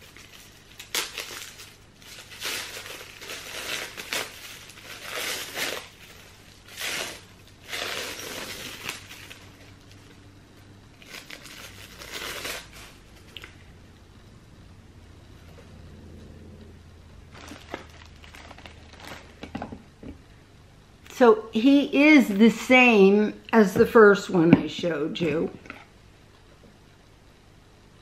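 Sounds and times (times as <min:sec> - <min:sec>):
wrapping crinkling by hand: 0:00.0 - 0:10.2, 0:10.9 - 0:13.6, 0:17.3 - 0:19.6.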